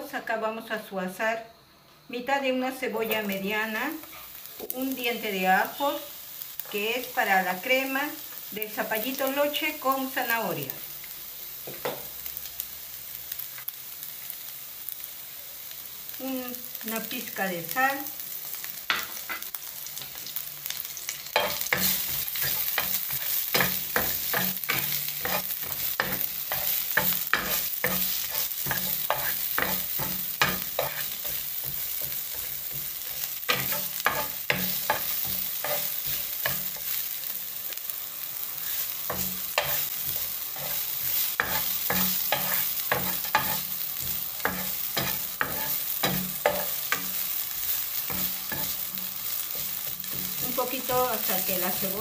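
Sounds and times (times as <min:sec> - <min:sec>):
onion sizzling in oil: 0:00.0 - 0:52.0
wooden spoon scraping a pan: 0:21.2 - 0:37.0, 0:38.6 - 0:52.0.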